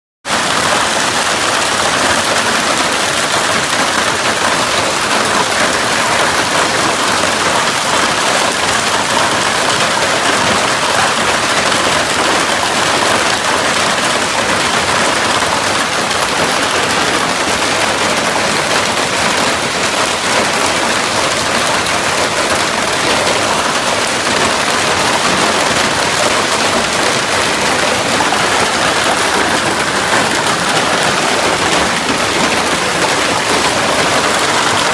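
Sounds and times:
heavy hail clattering: 0.3 - 34.9.

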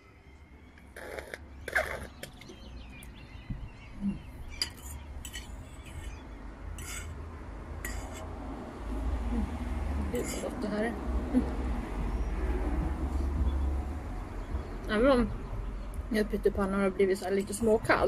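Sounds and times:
low steady rumble: 8.6 - 18.0.

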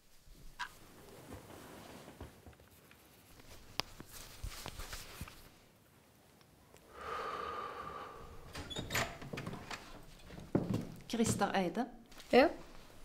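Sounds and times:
faint clicks and rustles: 0.1 - 6.8.

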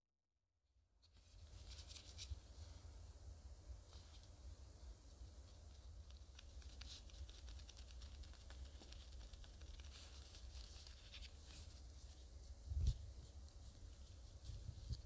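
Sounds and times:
low steady hum: 0.8 - 15.0
hands rustling and tapping dough: 5.6 - 15.0.

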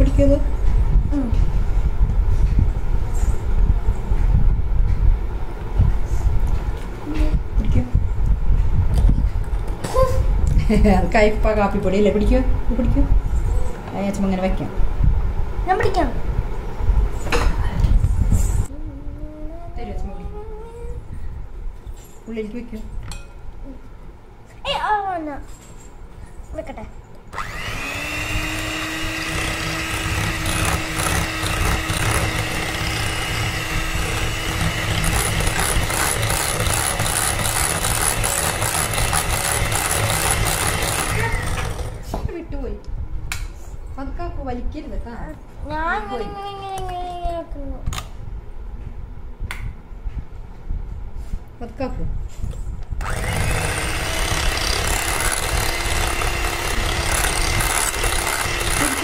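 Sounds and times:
electric hand mixer running: 27.4 - 42.0, 53.0 - 59.0.

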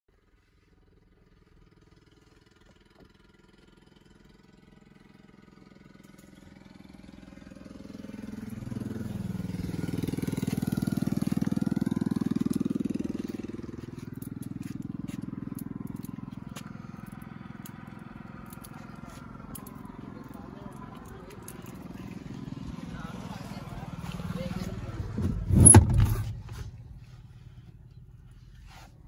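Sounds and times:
vehicle engine pulsing: 1.1 - 29.0.

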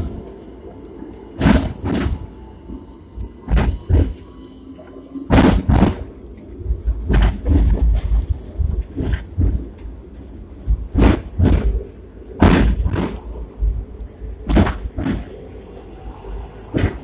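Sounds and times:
low running rumble: 0.0 - 17.0
tram wheels knocking on rail joints: 1.4 - 2.4, 3.4 - 4.3, 5.3 - 15.6, 16.6 - 17.0.

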